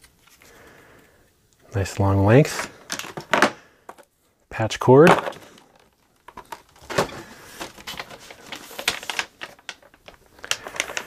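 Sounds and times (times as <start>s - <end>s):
cardboard packaging rustling: 5.0s - 11.0s.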